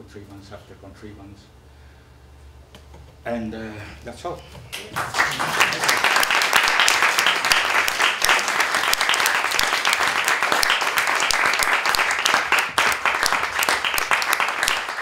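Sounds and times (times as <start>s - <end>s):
audience applauding: 4.7s - 15.0s.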